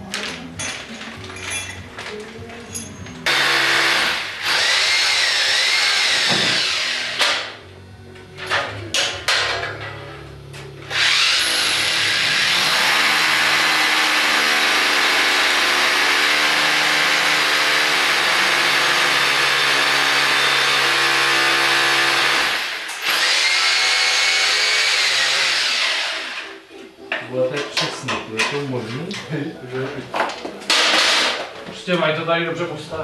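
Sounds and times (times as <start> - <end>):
electric drill boring into ceiling: 3.3 - 7.5, 10.9 - 26.5.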